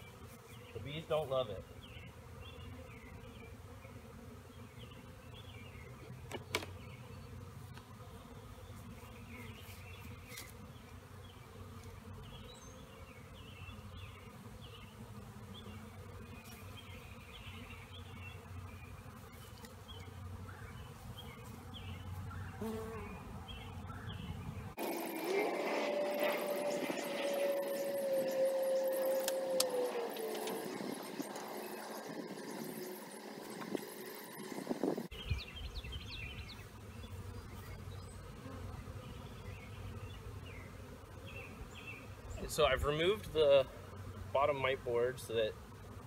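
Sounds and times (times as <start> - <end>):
bees buzzing: 0.0 - 46.0.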